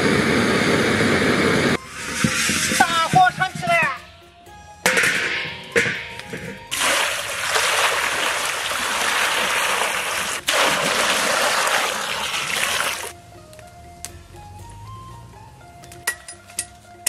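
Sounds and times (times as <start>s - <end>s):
water pouring and splashing: 6.7s - 13.2s.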